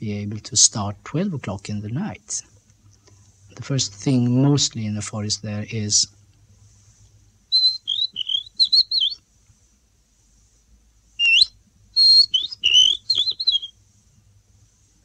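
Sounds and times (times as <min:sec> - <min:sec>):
person whistling birdsong: 0:07.6 - 0:09.2, 0:11.2 - 0:13.7.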